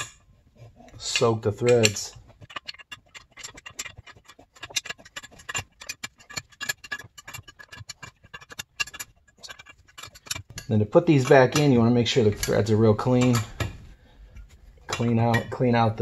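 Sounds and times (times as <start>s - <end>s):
small metal clinks: 0.9s - 13.9s
ratcheting wrench clicking: 1.0s - 13.7s.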